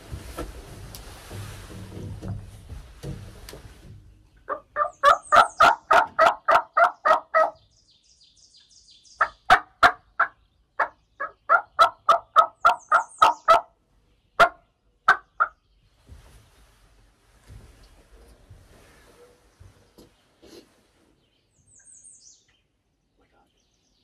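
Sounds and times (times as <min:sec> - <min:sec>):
turkey yelping: 0:04.5 - 0:07.6, 0:09.2 - 0:13.7, 0:14.4 - 0:15.6.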